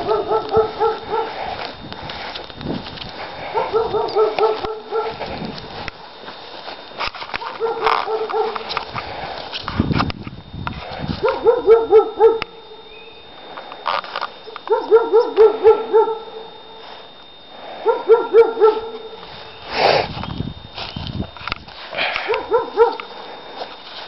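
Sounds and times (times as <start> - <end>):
dog barking rapidly: 0.0 - 1.4, 3.5 - 5.2, 7.4 - 8.7, 11.2 - 12.5, 14.7 - 16.4, 17.8 - 19.0, 22.3 - 23.1.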